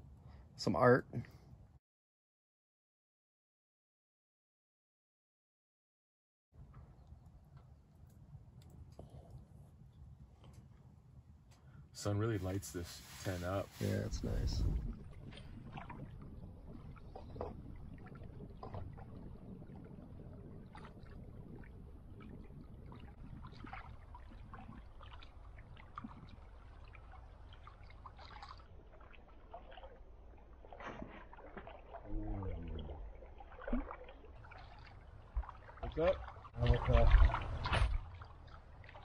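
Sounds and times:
low wind rumble: 0:06.6 - 0:28.9.

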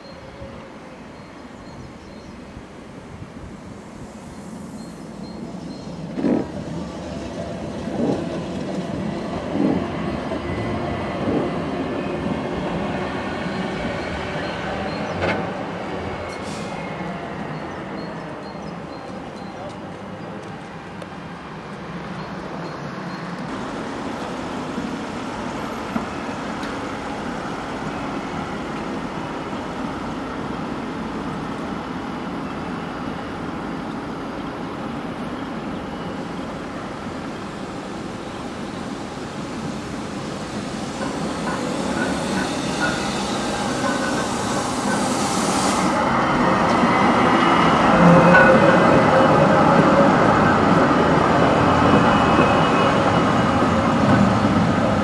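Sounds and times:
electric tram passing: 0:00.0 - 0:55.0.

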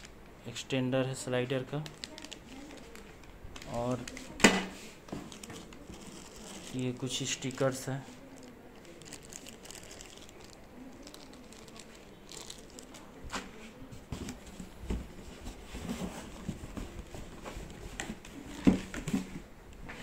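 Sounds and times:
plastic bags crinkling: 0:01.8 - 0:04.4, 0:05.2 - 0:13.2.

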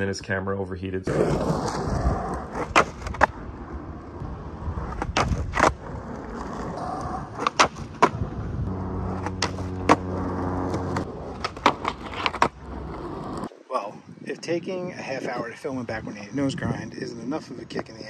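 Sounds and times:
skateboard wheels on asphalt: 0:01.0 - 0:13.6
skateboard tail clacks: 0:02.3 - 0:03.4, 0:04.8 - 0:08.4, 0:09.0 - 0:12.6
steady low hum: 0:08.2 - 0:11.4.

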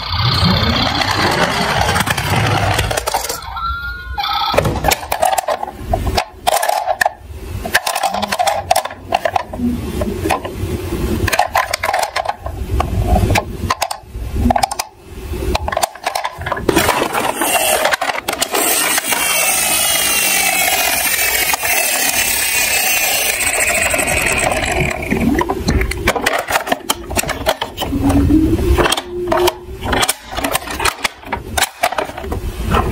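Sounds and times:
toy mechanical whirring: 0:00.0 - 0:03.5, 0:04.5 - 0:09.6, 0:11.3 - 0:12.5, 0:15.5 - 0:32.9
plastic toys handled clattering: 0:00.8 - 0:03.4, 0:04.6 - 0:10.5, 0:11.2 - 0:14.9, 0:15.5 - 0:32.9.

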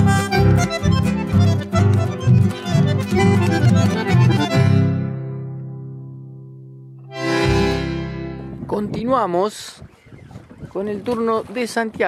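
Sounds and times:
instrumental music: 0:00.0 - 0:08.7.

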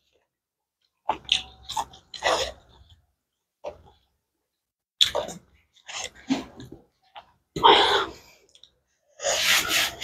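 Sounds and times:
chewing food: 0:00.0 - 0:04.1.

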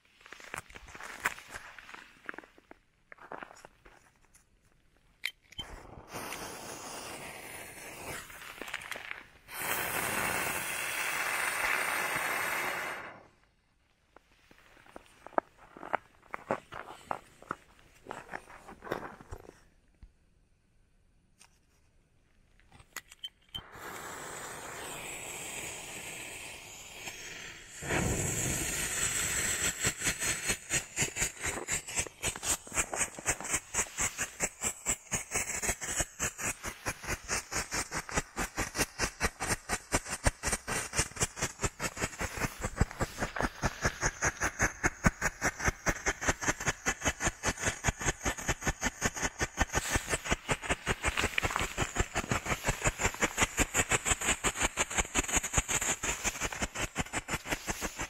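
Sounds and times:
firework hissing: 0:05.6 - 0:13.4, 0:23.6 - 0:58.0
rapid sharp firework pops: 0:23.7 - 0:58.0.

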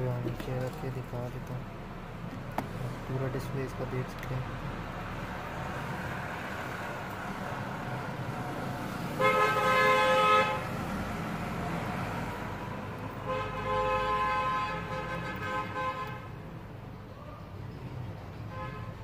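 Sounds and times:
traffic noise: 0:00.0 - 0:19.0
vehicle horn honking: 0:09.2 - 0:10.7, 0:13.2 - 0:16.4, 0:18.5 - 0:19.0.

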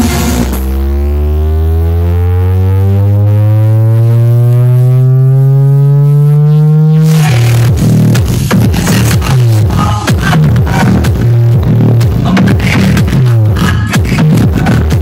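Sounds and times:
rising electronic tone: 0:00.0 - 0:08.7
music beat: 0:00.0 - 0:15.0.

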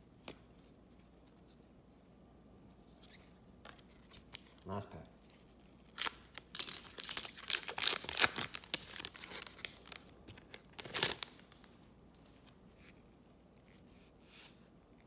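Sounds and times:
foil wrapper crinkling: 0:05.7 - 0:11.8.

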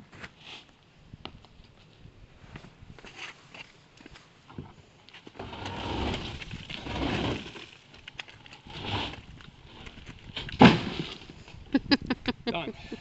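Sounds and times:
board scraping and shuffling: 0:04.6 - 0:11.4.

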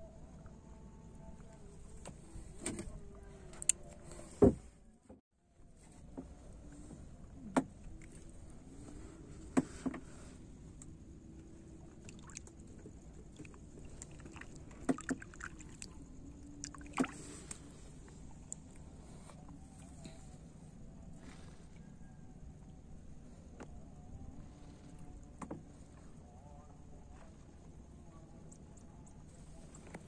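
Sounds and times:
steady low hum: 0:00.0 - 0:30.0
wooden knocks on boat: 0:04.4 - 0:04.7
faint water noise: 0:05.7 - 0:30.0.

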